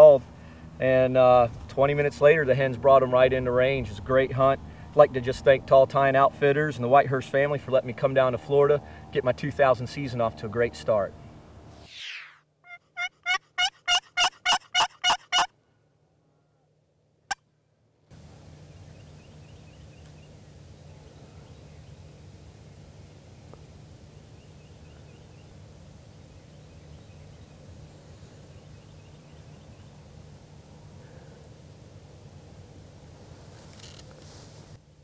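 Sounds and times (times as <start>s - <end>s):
outdoor ambience: 0.0s - 35.0s
wild turkey calling: 12.7s - 15.5s.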